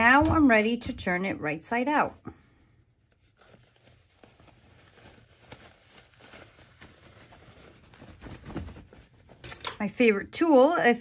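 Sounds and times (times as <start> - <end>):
fabric rustling and scuffing: 3.0 - 9.5.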